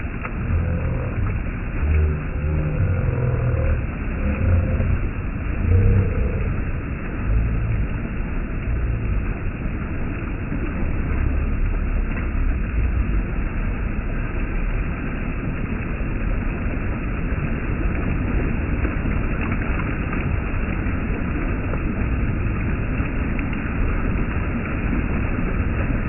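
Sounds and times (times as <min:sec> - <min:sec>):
water rushing over a weir: 0:00.0 - 0:26.0.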